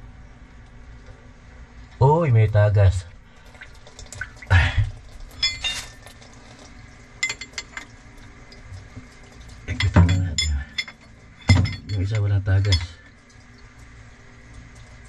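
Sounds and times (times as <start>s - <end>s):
ringing metallic clinks: 5.4s - 5.9s, 9.7s - 13.1s.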